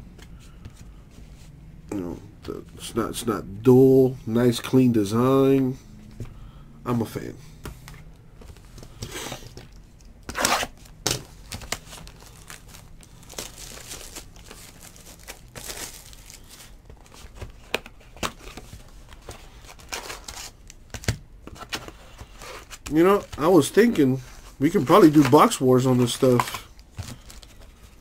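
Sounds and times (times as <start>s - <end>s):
plastic wrap tearing and crinkling: 10.3s - 16.8s.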